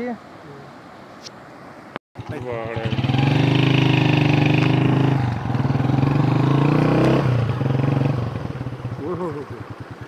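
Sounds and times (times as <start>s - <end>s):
small motorcycle engine running: 2.2s - 10.0s.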